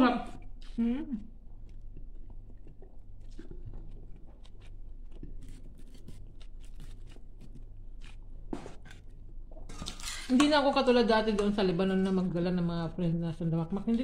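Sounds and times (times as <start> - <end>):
steady low hum: 0.0 - 14.0
faint chewing: 0.3 - 10.0.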